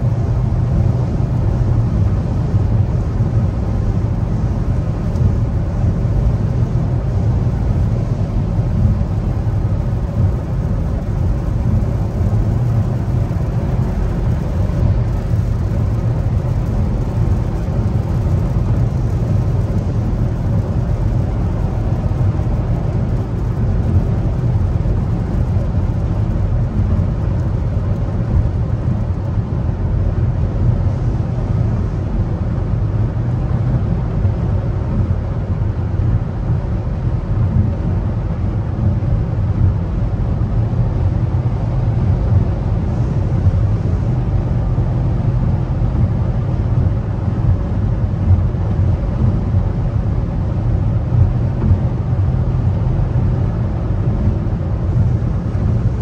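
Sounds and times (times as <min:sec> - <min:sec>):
wind noise: 0:00.0 - 0:56.0
tyre rumble inside car: 0:04.3 - 0:29.7, 0:51.1 - 0:52.8.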